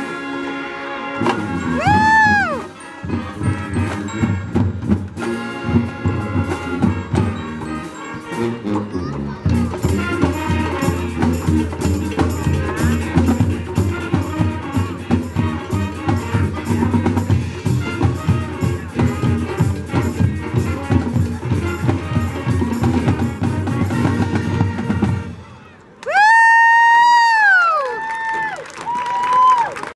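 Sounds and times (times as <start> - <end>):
marching band playing: 0.0 - 25.9
loud high whoop: 1.8 - 2.7, 26.0 - 29.9.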